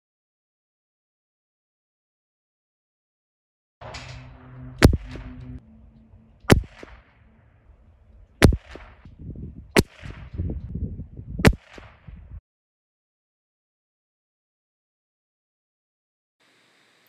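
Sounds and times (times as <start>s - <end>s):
rifle shots: 3.8s - 5.6s, 6.4s - 7.4s, 8.3s - 10.7s, 11.4s - 12.3s
low rumbling: 3.8s - 12.4s.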